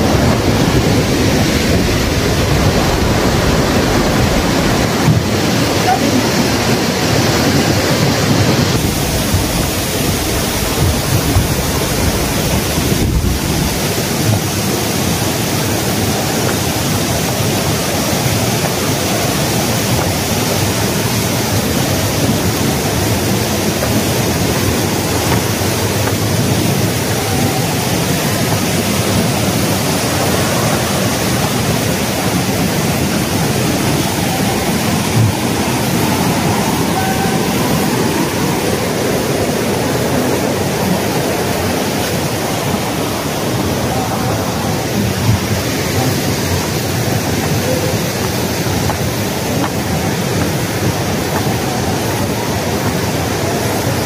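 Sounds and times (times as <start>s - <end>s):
fast-flowing water rushing: 0.0s - 54.0s.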